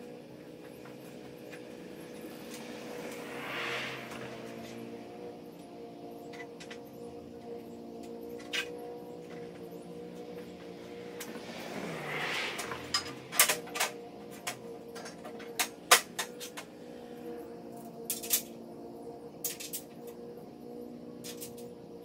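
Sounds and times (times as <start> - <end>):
steady low hum: 0.0 - 22.0
metal parts clinking: 18.1 - 18.5.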